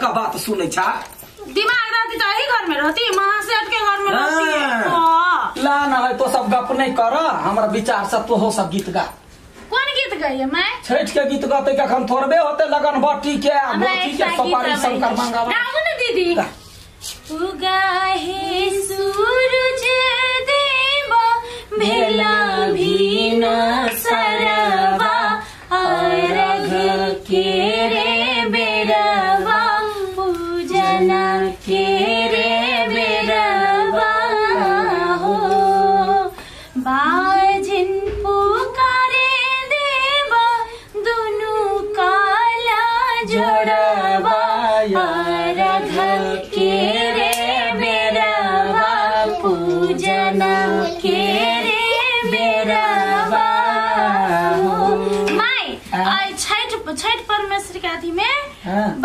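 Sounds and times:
women singing folk song: 16.6 - 57.0.

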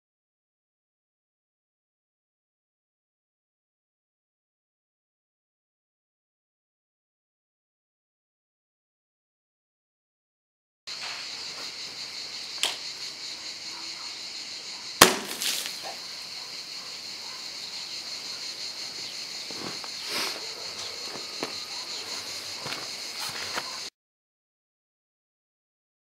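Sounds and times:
insects buzzing: 10.9 - 23.9
water balloon bursting: 15.0 - 15.8.

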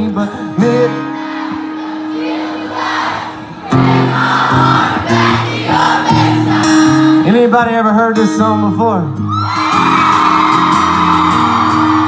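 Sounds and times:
acoustic guitar strumming: 0.0 - 12.0
crowd cheering: 1.2 - 7.0, 9.3 - 12.0.

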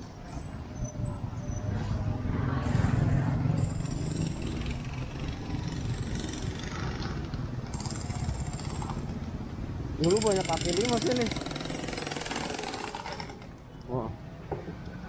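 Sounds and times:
motor scooters riding past: 1.7 - 9.2.

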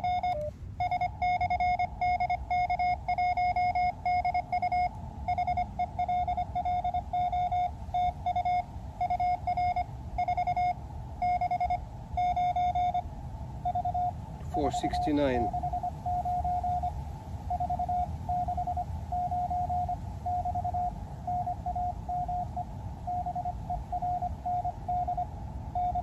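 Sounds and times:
morse code tone: 0.0 - 13.0, 13.6 - 26.0.

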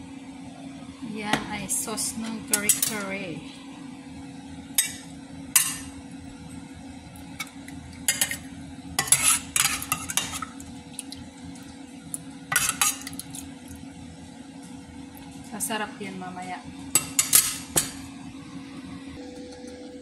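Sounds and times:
steady low hum: 0.0 - 20.0
metal ladle scraping pot: 8.1 - 8.4, 9.0 - 10.5, 12.5 - 13.2.

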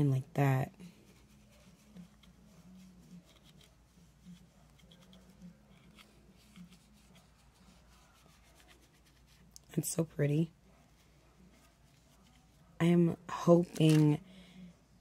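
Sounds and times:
faint low hum: 0.0 - 15.0
paintbrush scratching and tapping: 0.9 - 9.7.

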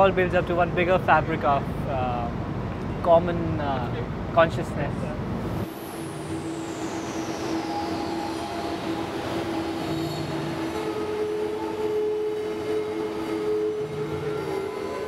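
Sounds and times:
droning ambient music: 5.5 - 15.0
hiss: 5.6 - 14.9
high whistle gliding downward: 5.6 - 15.0.

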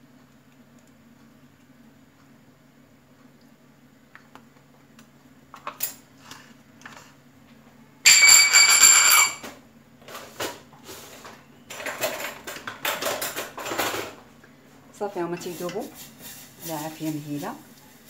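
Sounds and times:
metal kitchenware clinking: 8.1 - 9.5.

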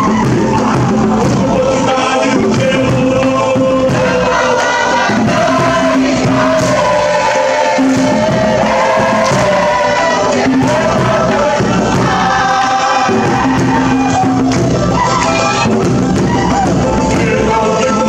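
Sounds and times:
group of people singing: 0.0 - 18.0.

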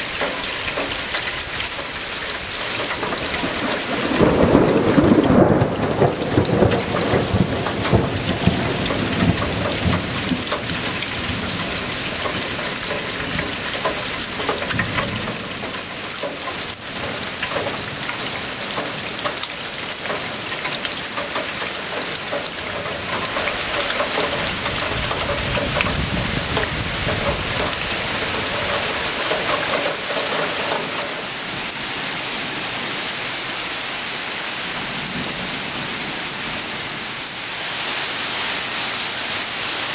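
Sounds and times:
thunder rumbling: 0.0 - 31.7
steady rain: 0.0 - 39.9.

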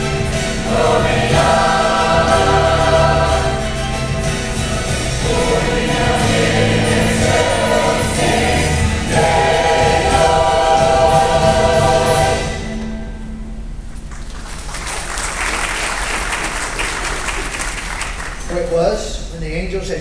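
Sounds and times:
church choir singing: 0.0 - 13.2
applause: 14.1 - 18.7.

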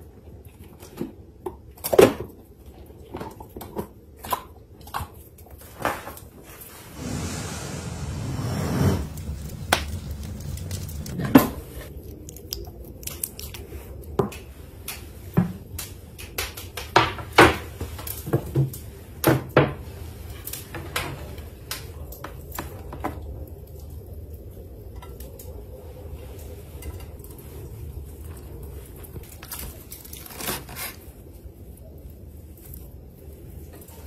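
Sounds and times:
brief rush of noise: 6.9 - 11.9.

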